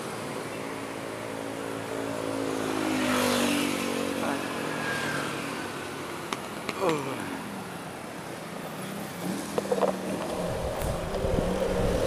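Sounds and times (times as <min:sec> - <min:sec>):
vehicle engines in slow traffic: 0:00.0 - 0:12.0
vehicle passing: 0:09.2 - 0:12.0.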